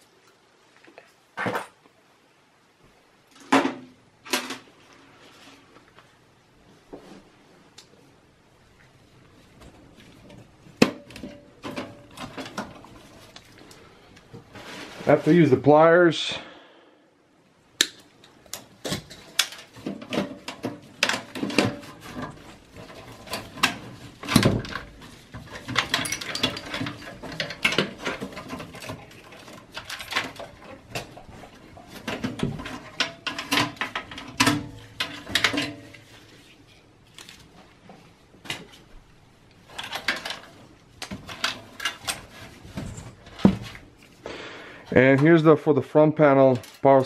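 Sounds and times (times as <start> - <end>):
clicks taps and scraping rustles: 2.8 - 8.0, 8.7 - 15.6, 17.8 - 44.2, 46.2 - 47.0
cables handled in computer case: 9.6 - 15.4, 18.2 - 38.9, 39.6 - 44.2, 46.5 - 47.0.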